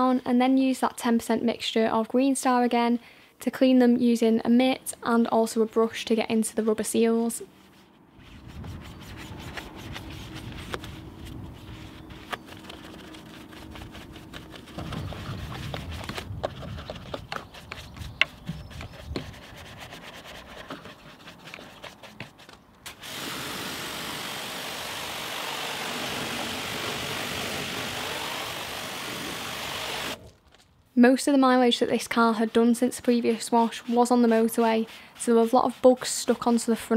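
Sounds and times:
brush scrubbing: 0:05.4 - 0:22.7, 0:24.4 - 0:30.2, 0:31.5 - 0:36.9
pressure washer spray hissing: 0:22.9 - 0:30.2.

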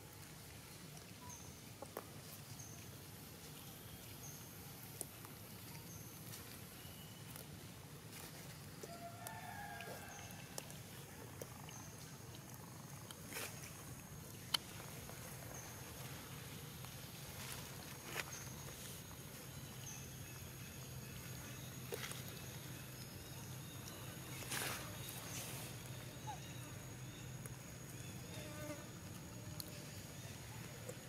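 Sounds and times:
monkeys rustling in dry leaves: 0:20.5 - 0:26.4.

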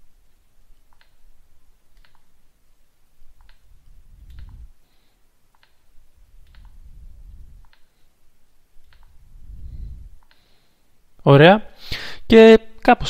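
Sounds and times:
touchscreen taps: 0:03.4 - 0:04.7, 0:06.4 - 0:06.8
low rumble of handling: 0:03.6 - 0:04.8.

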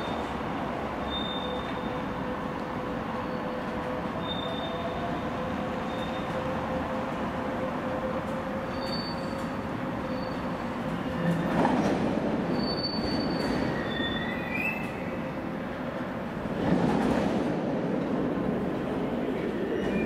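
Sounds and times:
train wheels rumbling on rails: 0:00.0 - 0:20.0
high thin wheel squeals: 0:01.0 - 0:02.0, 0:04.2 - 0:04.9, 0:08.7 - 0:10.6, 0:12.5 - 0:15.0.

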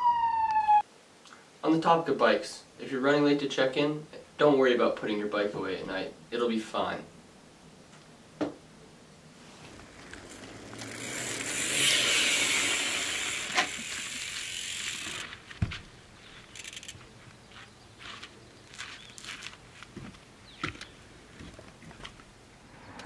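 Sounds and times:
bicycle freehub ratchet buzzing: 0:09.9 - 0:15.3, 0:16.4 - 0:17.0.

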